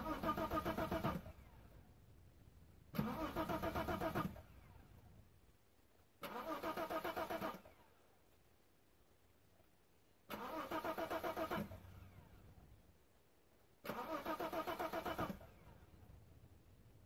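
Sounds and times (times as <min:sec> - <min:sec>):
engine cranking on starter motor: 0:00.0 - 0:01.6, 0:02.9 - 0:04.6, 0:06.2 - 0:07.8, 0:10.3 - 0:12.3, 0:13.8 - 0:15.8.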